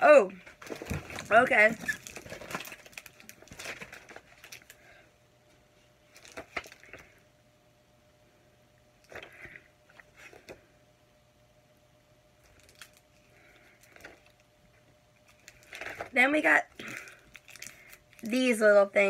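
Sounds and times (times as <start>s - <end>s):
paper and cardboard box rustling: 0.6s - 4.6s.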